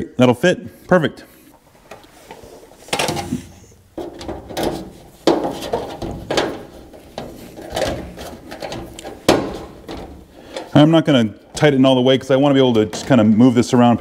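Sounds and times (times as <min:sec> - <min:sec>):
plastic spoiler knocking and scraping: 0:02.3 - 0:10.7.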